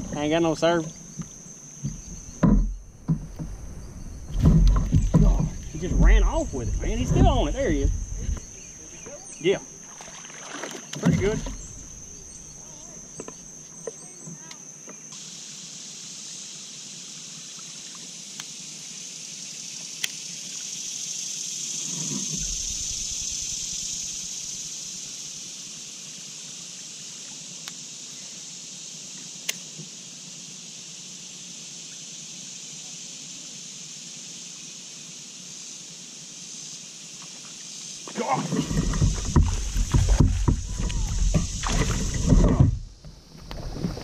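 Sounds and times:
insect chorus drone: 0.0s - 44.0s.

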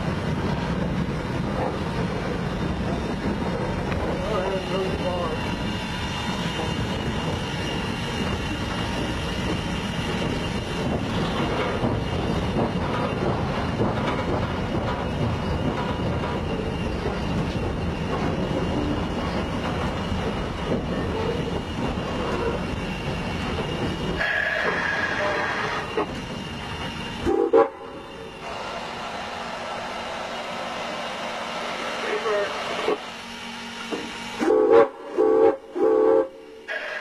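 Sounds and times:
steam locomotive rumble and rattle: 0.0s - 37.0s
wheels clicking over rail joints: 6.5s - 26.9s.

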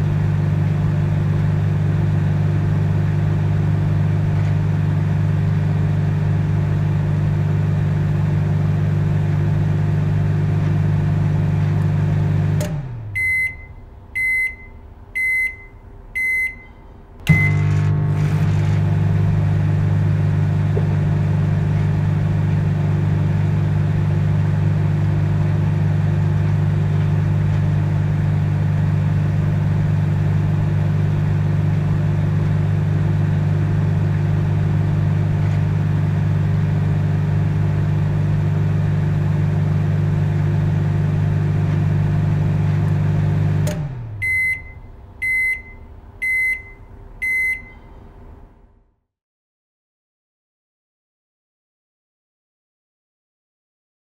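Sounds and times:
microwave oven humming: 0.0s - 48.6s
high beeps: 13.2s - 17.6s, 44.2s - 47.8s.

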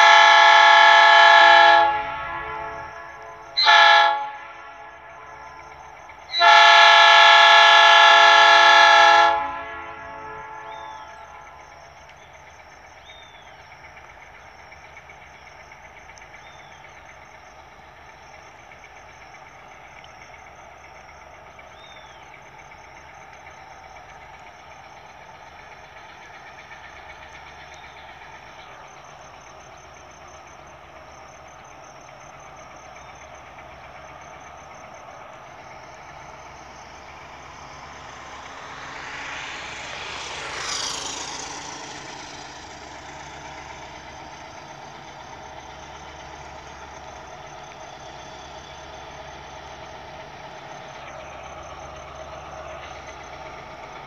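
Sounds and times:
distant diesel locomotive drone: 0.0s - 54.0s
motorcycle passing: 34.8s - 47.0s.

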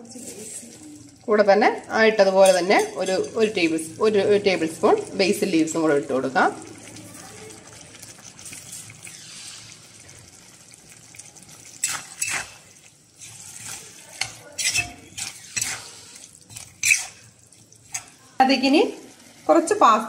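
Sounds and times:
sauce sizzling in pan: 0.0s - 20.0s
ladle scraping and clinking pan: 11.8s - 17.2s.

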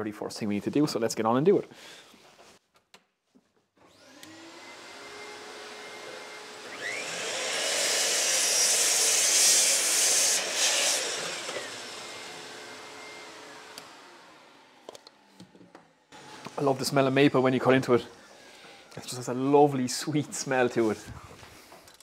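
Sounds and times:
mitre saw motor whine: 3.9s - 15.2s
saw blade cutting wood: 4.0s - 14.8s.

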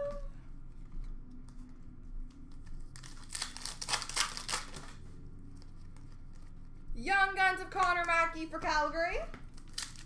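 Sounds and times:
plastic wrapper tearing and crinkling: 2.6s - 5.0s, 9.4s - 10.0s.

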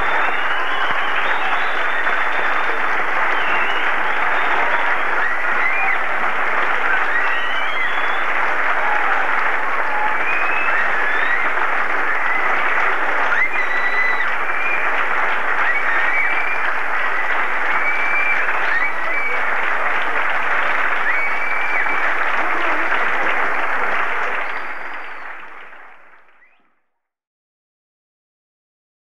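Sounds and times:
audience applauding: 0.0s - 26.6s.

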